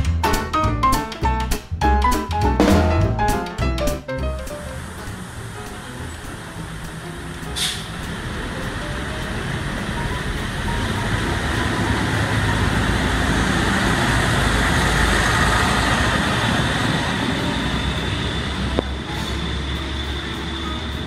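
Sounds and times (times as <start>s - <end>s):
diesel railcar engines: 4.2s - 21.0s
train wheels on rails: 4.5s - 21.0s
short hiss: 6.8s - 8.1s.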